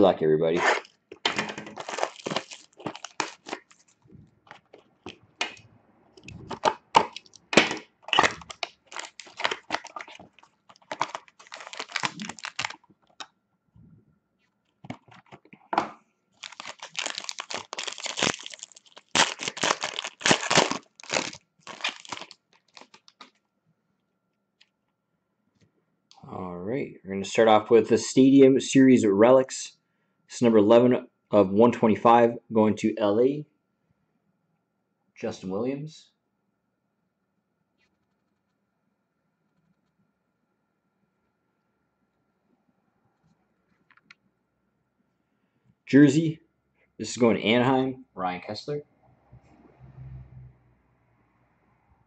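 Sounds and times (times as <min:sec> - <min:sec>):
foil pack crinkling and tearing: 0:00.6 - 0:05.6, 0:06.5 - 0:13.3, 0:16.4 - 0:23.4
cardboard box tearing: 0:01.8 - 0:03.7, 0:10.8 - 0:12.8, 0:16.4 - 0:22.9.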